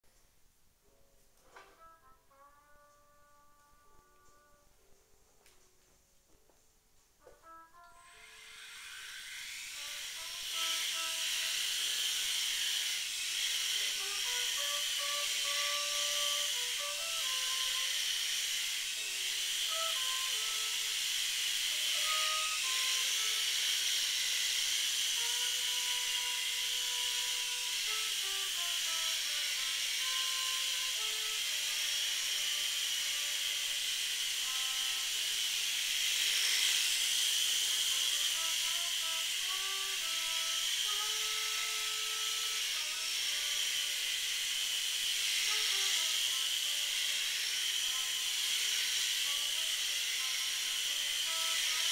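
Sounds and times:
soft music from tv: 0.8 - 8.3
toy helicopter rotors whirring: 7.4 - 51.9.

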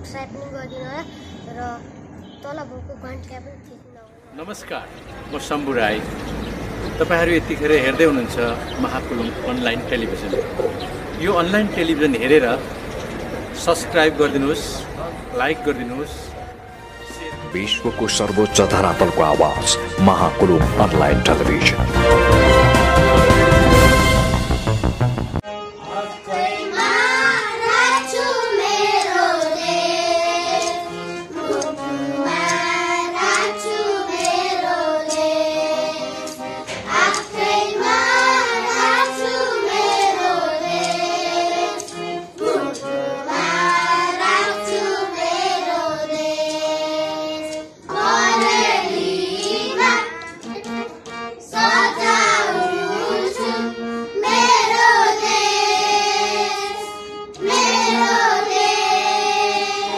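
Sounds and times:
children singing: 25.8 - 59.9.

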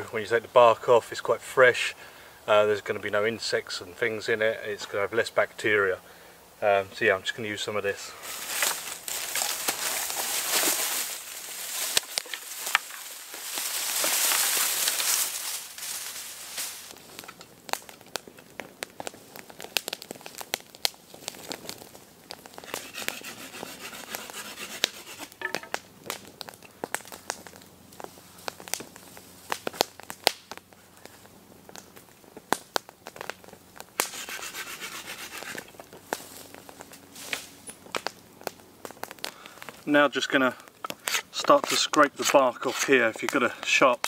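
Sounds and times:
campfire crackling and popping: 0.0 - 44.0
leafy shoots rustling and tearing: 8.1 - 18.3, 19.0 - 25.4, 33.9 - 38.2.

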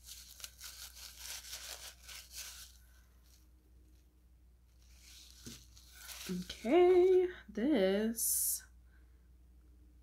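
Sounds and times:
paper wrapping rustling: 0.0 - 4.1, 4.7 - 7.3.

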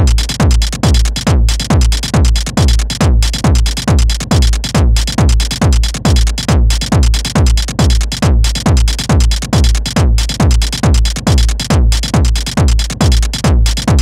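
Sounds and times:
deep bass: 0.0 - 14.0
kick drum: 0.0 - 14.0.

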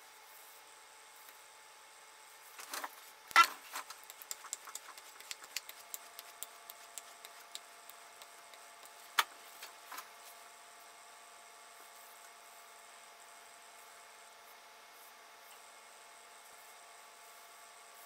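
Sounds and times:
light ticks from stropping strokes: 3.9 - 9.2.

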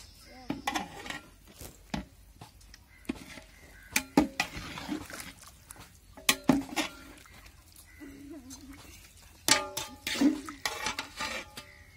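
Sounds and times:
wet sloshing: 3.3 - 11.4.

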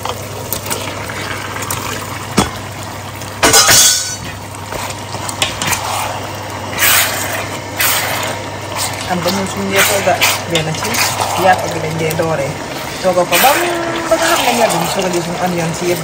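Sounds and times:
metal utensil scraping a pot: 3.6 - 16.0.

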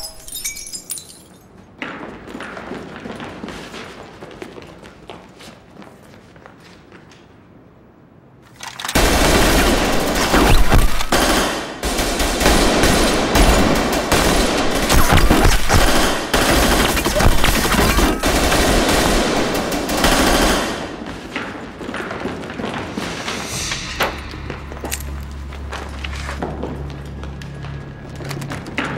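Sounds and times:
rapid automatic gunfire: 9.0 - 20.9.

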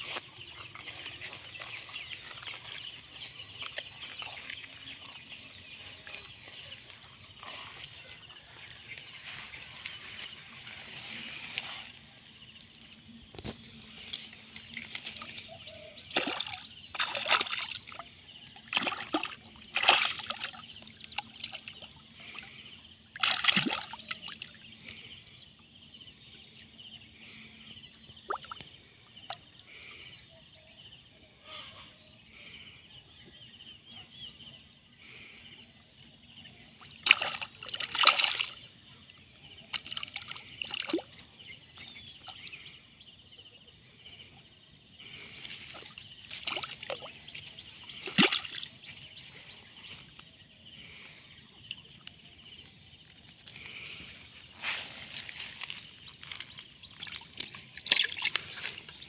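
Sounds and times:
water splashing and sloshing: 0.0 - 25.1, 36.3 - 42.7, 44.0 - 59.0.

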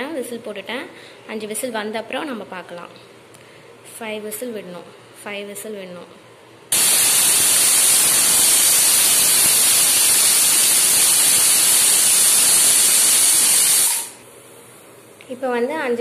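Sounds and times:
pressure cooker whistling steam: 6.7 - 14.3.

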